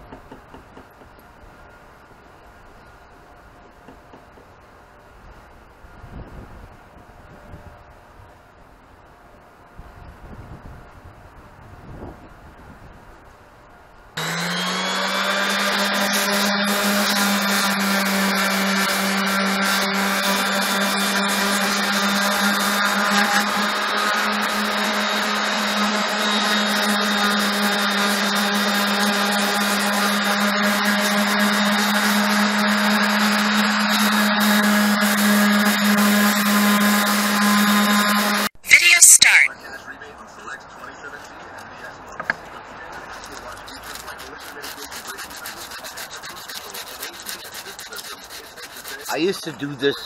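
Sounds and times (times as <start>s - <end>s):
orbital sander sanding fiberglass: 14.2s - 38.5s, 43.0s - 50.0s.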